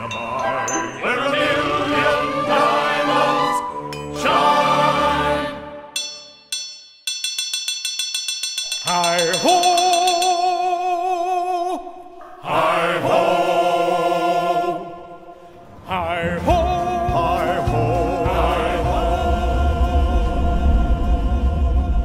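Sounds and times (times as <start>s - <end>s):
choir singing long held notes: 0.0s - 6.0s, 12.4s - 22.0s
low rumble: 19.2s - 22.0s.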